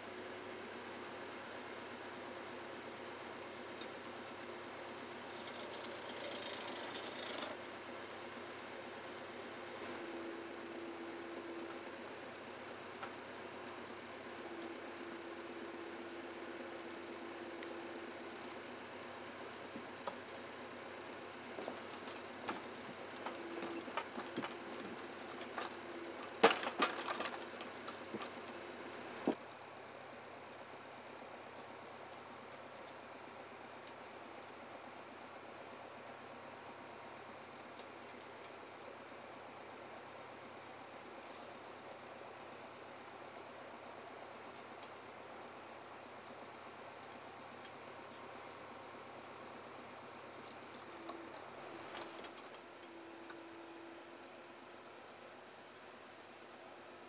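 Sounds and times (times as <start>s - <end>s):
engine running steadily: 0.0s - 57.0s
hissing rattling crane: 4.4s - 29.4s
sharp clatter: 5.3s - 7.6s
steady hum: 7.1s - 57.0s.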